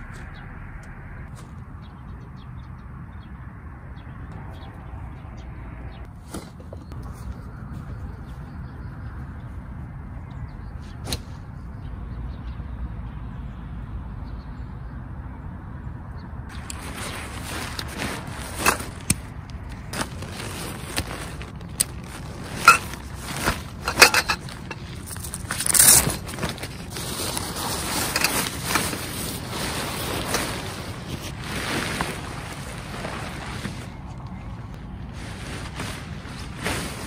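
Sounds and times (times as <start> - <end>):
tent fabric rustling: 16.5 - 37.0.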